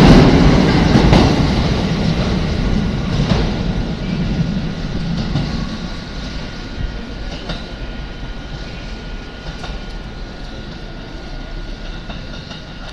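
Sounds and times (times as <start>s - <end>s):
train wheels rumbling on rails: 0.0s - 12.9s.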